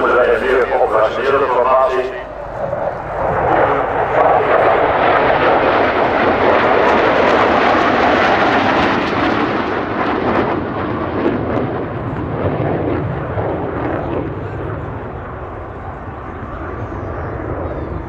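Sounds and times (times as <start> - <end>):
jet engines rushing: 0.0 - 18.0.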